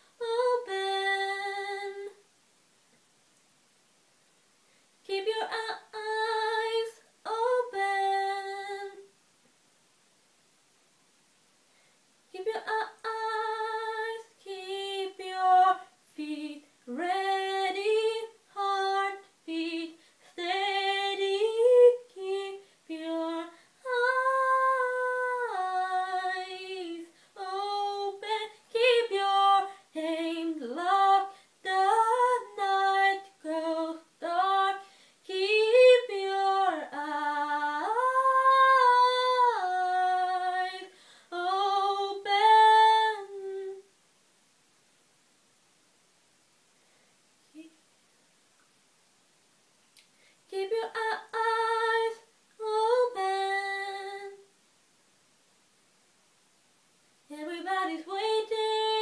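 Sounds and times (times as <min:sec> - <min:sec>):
woman singing unaccompanied: 0:00.0 - 0:02.3, 0:05.0 - 0:09.2, 0:12.3 - 0:43.9, 0:50.4 - 0:54.5, 0:57.2 - 0:59.0.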